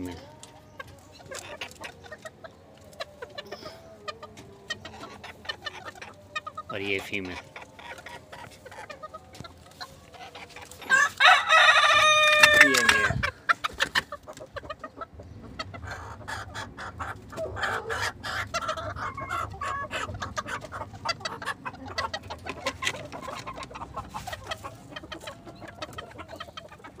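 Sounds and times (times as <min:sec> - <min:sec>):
chickens clucking: 0:00.0 - 0:27.0.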